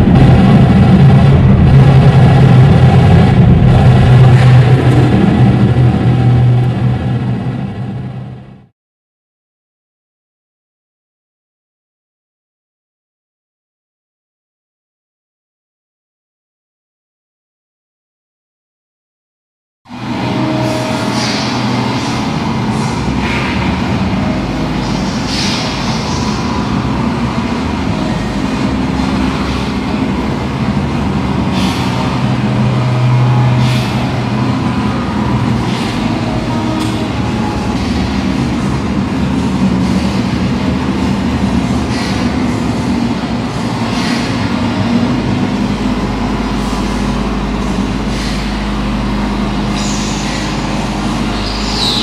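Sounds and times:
harsh electronic noise: 0.0s - 8.7s, 19.9s - 52.0s
low droning tones: 0.0s - 8.7s, 19.9s - 52.0s
low hum: 0.0s - 8.7s, 19.9s - 52.0s.

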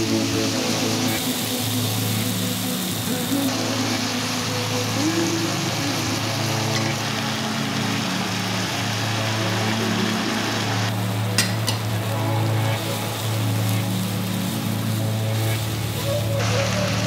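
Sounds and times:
background music with low notes: 0.0s - 17.0s
food sizzling in a frying pan: 0.0s - 17.0s.

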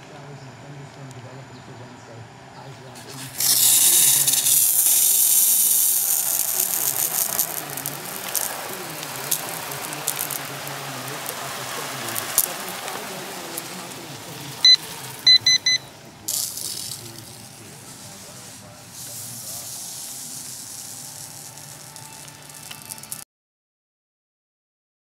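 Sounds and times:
sprinkler spray hissing: 2.7s - 23.2s
short high beeps: 14.6s - 16.0s.

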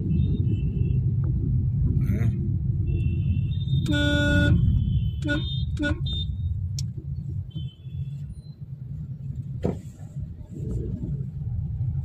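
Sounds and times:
car engine and road rumble: 0.0s - 12.0s
faint car horn: 2.9s - 6.4s
thump: 9.6s - 10.0s.

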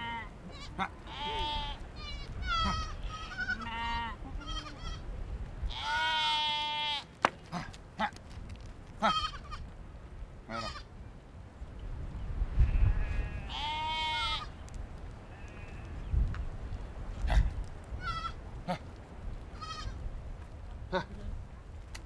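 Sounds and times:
goats bleating: 0.0s - 5.0s, 5.7s - 8.1s, 9.0s - 9.6s, 10.5s - 10.9s, 12.7s - 14.5s, 19.6s - 20.0s.

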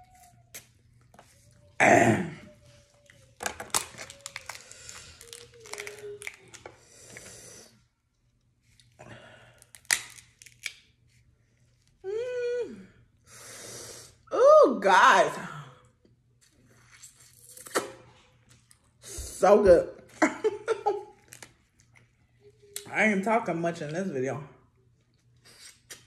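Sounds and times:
wet tearing: 3.1s - 7.2s, 8.7s - 10.9s, 16.8s - 18.8s
shells cracking and snapping: 3.4s - 6.8s, 9.6s - 10.9s.

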